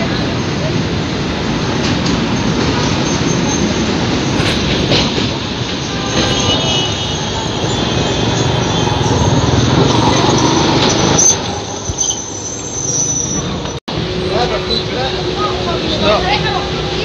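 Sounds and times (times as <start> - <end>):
tram wheels rumbling on rails: 0.0 - 17.0
high wheel squeal: 2.4 - 15.2.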